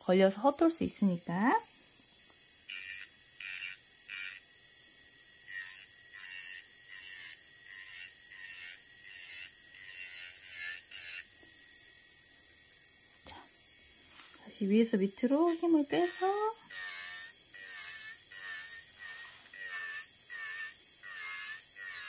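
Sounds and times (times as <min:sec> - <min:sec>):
electric nail drill whining: 0:00.0 - 0:22.0
drill bit scraping nail: 0:02.3 - 0:04.4, 0:05.4 - 0:11.4, 0:15.4 - 0:22.0.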